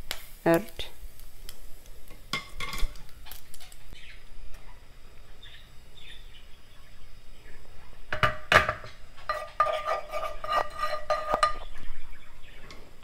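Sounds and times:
metal utensil knocking on a pan: 8.1 - 11.7
utensil scraping a frying pan: 8.2 - 12.0.

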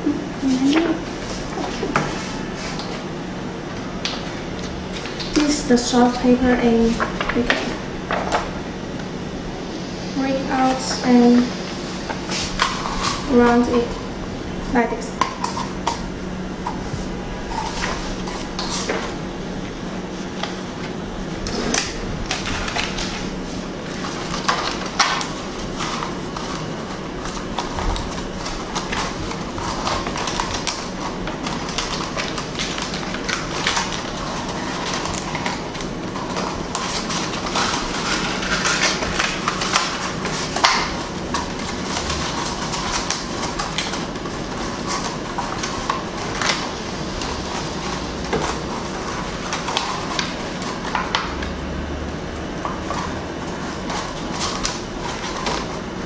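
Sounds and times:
stiff paper rustling and crackling: 3.7 - 8.6, 10.5 - 14.1, 16.7 - 51.6, 52.2 - 56.0.

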